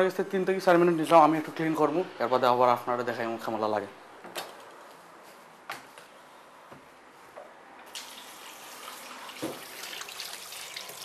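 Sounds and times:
tap water splashing into sink: 7.9 - 11.0.

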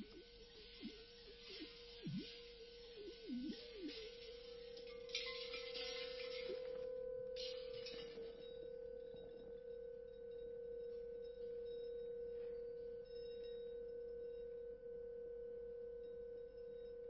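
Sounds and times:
steady ringing tone: 0.0 - 17.0.

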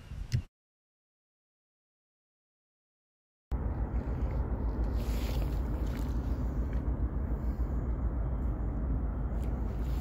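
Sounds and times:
ship engines droning: 3.5 - 10.0.

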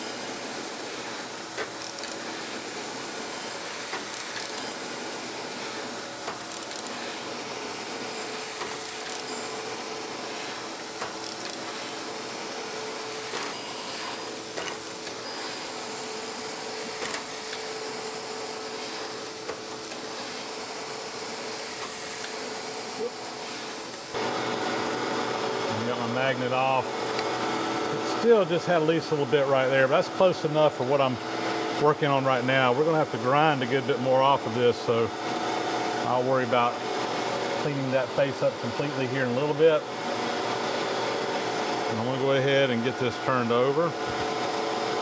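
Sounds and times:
grinding wheel hissing on metal: 0.0 - 24.2.

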